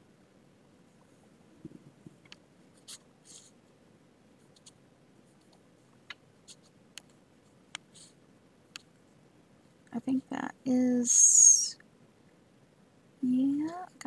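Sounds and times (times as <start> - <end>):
scratchy strokes: 2.8 - 3.6.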